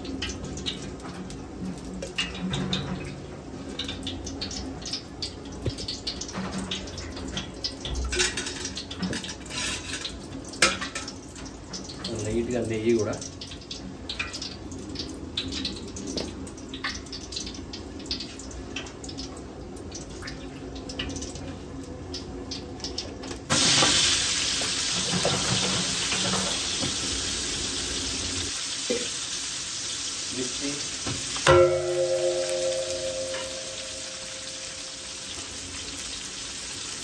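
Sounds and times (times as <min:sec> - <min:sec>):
light oil crackles: 0:00.0 - 0:37.0
oil crackling and sizzling: 0:00.0 - 0:37.0
metallic knock on pot: 0:31.4 - 0:34.8.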